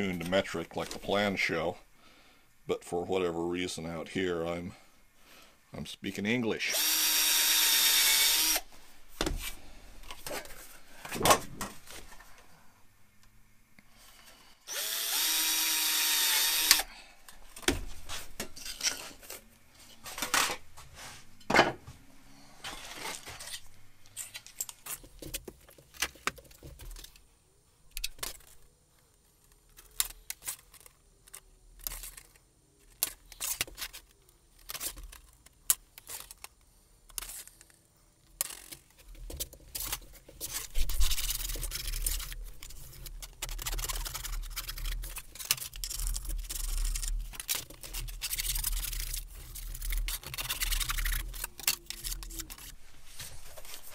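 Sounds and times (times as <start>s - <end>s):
cordless drill drilling metal: 6.7s - 8.7s, 14.7s - 16.9s.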